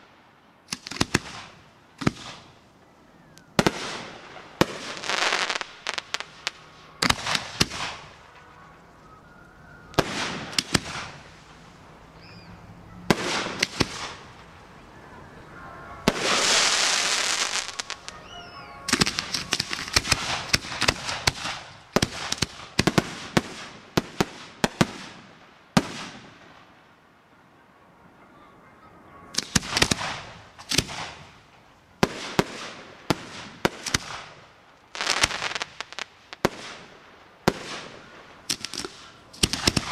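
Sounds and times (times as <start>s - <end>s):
fireworks bursting: 0.0s - 26.9s, 29.3s - 39.9s
firework hissing crackle: 0.6s - 12.5s, 13.1s - 14.7s, 16.1s - 26.2s, 32.0s - 39.9s.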